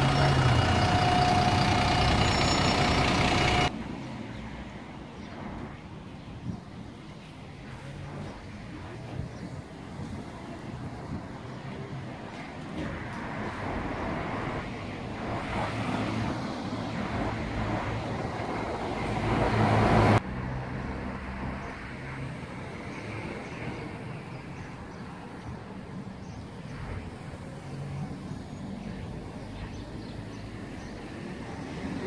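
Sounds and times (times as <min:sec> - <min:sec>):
loud traffic rushing: 0:00.0 - 0:05.2, 0:12.6 - 0:32.0
cars passing at low speed: 0:00.0 - 0:05.7, 0:13.0 - 0:24.0.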